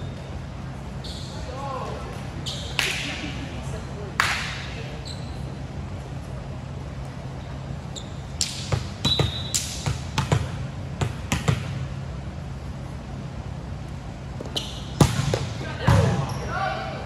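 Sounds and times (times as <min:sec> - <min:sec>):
sneaker squeaks: 0:00.0 - 0:01.6, 0:02.4 - 0:02.9, 0:04.9 - 0:05.6, 0:07.4 - 0:10.2, 0:14.4 - 0:16.8.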